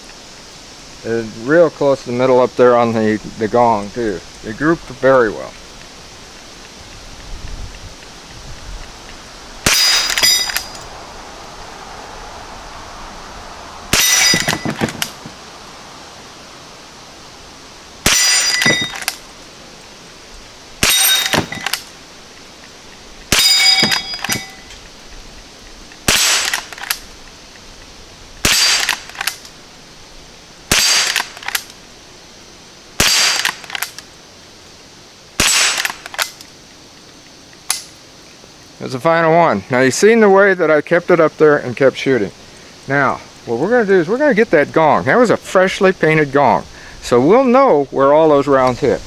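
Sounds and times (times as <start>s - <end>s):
rifle shots: 9.6s - 10.7s, 13.9s - 15.2s, 18.0s - 19.2s, 20.8s - 21.9s, 23.3s - 24.6s, 26.0s - 27.0s, 28.4s - 29.4s, 30.7s - 31.7s, 33.0s - 34.0s, 35.4s - 36.4s
steel gong target clanging: 23.3s - 24.7s.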